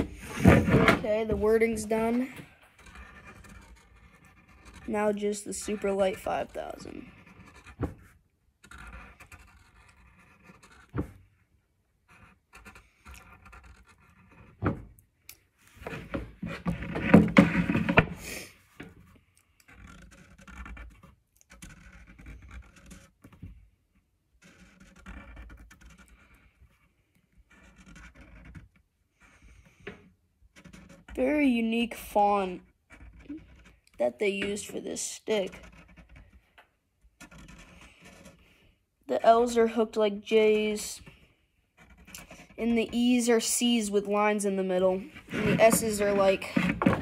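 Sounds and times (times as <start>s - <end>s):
knocking and rustling: 0.0s - 4.9s, 15.6s - 19.2s, 45.0s - 47.0s
marker scratching: 0.0s - 11.4s, 12.0s - 14.8s, 19.2s - 23.7s, 24.3s - 38.6s, 39.2s - 47.0s.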